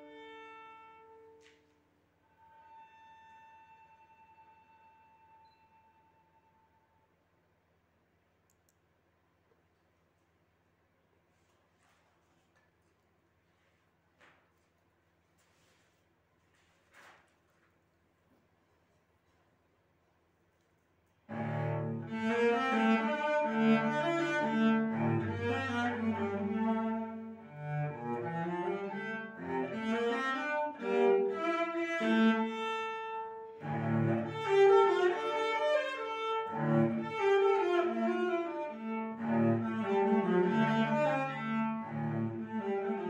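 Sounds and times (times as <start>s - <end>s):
solo cello bowed: 0.0s - 6.9s, 21.3s - 43.0s.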